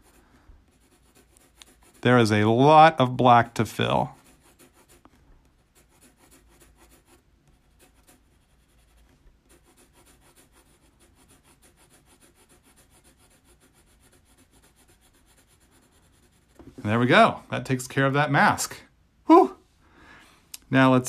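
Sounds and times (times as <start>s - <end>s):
pencil scratching on paper: 0.0s - 16.8s.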